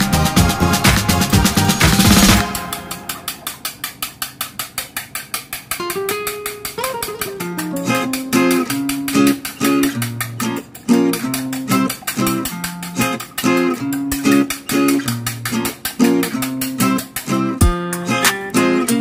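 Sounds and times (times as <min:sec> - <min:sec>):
fast ticking beat: 0:00.0 - 0:19.0
plucked-string melody: 0:05.8 - 0:19.0.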